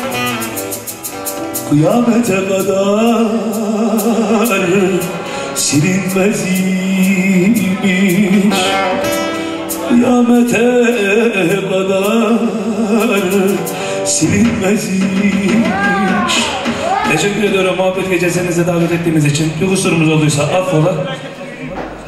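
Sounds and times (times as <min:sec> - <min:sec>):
man singing with vibrato: 0:01.6 - 0:20.9
plucked long-necked lute: 0:08.2 - 0:10.6.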